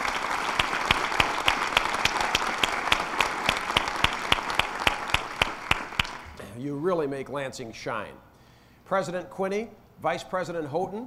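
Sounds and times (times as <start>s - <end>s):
audience applauding: 0.0s - 6.4s
sharp single claps: 0.0s - 6.4s.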